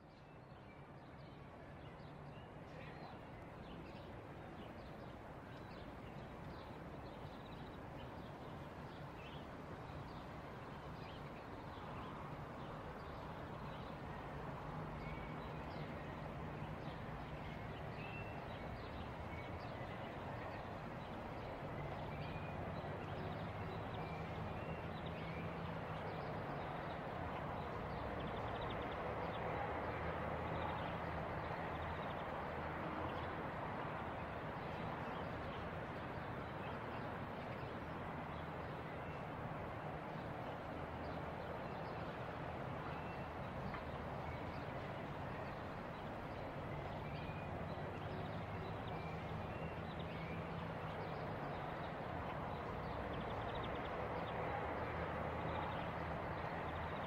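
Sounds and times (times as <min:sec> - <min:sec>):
road traffic rumble: 0:04.4 - 0:57.0
small birds chirping: 0:41.0 - 0:57.0.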